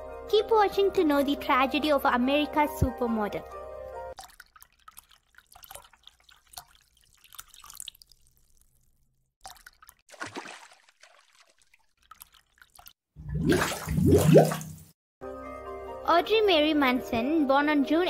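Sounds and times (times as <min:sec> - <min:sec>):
cartoon water drops dripping: 0:04.2 - 0:10.1
falling plop: 0:04.2 - 0:14.9.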